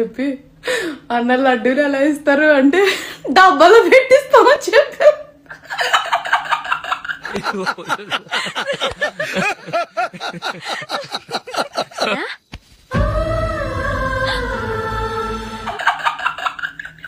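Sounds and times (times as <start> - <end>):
woman laughing: 5.0 - 12.4, 15.6 - 17.0
man laughing: 5.8 - 12.4, 15.6 - 17.0.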